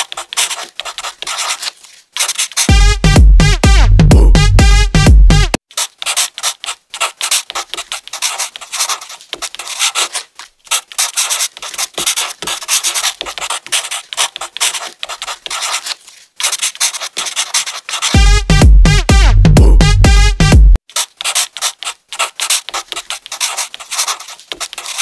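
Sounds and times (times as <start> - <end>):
marker scratching on paper: 0.0 - 2.7, 5.6 - 18.2, 20.8 - 25.0.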